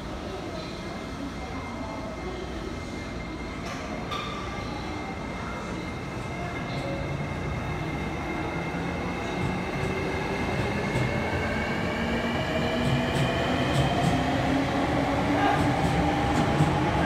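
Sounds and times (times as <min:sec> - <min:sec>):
train rolling rumble: 0:05.2 - 0:17.0.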